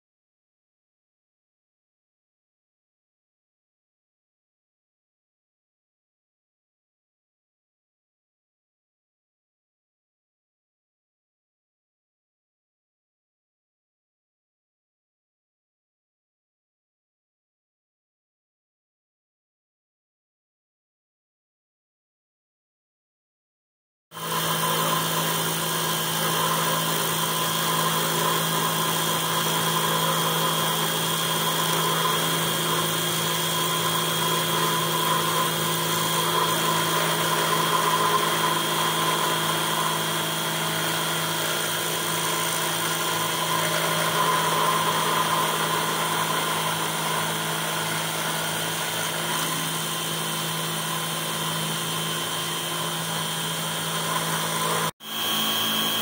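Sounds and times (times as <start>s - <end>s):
engraver spindle whine milling brass: 24.2s - 56.0s.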